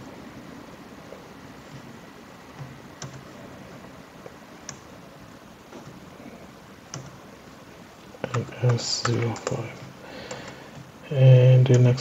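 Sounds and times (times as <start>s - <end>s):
faint steady hiss: 0.0s - 12.0s
computer mouse clicks: 2.5s - 3.4s, 4.6s - 4.9s, 6.9s - 7.2s, 8.2s - 10.9s.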